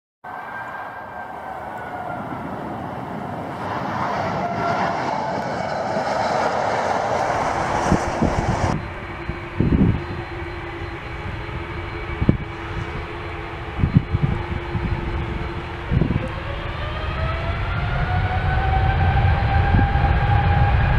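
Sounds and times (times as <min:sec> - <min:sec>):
steady jet whine: 0:00.3 - 0:20.9
jet engines running: 0:00.9 - 0:20.9
wind thumps on microphone: 0:07.7 - 0:08.9, 0:13.8 - 0:16.4.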